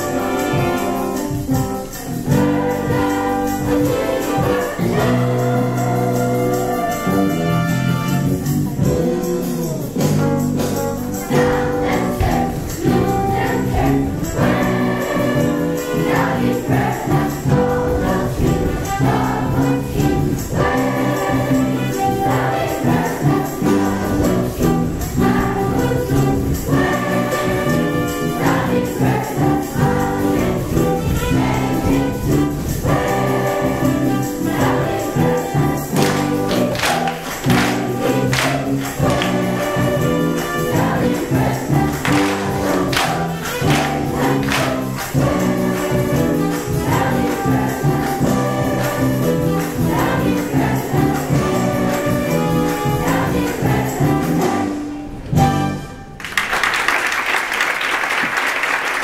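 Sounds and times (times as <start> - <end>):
musical accompaniment: 0.0 - 57.2
children's choir singing jazz: 0.0 - 59.0
sharp percussive hits: 30.4 - 49.0.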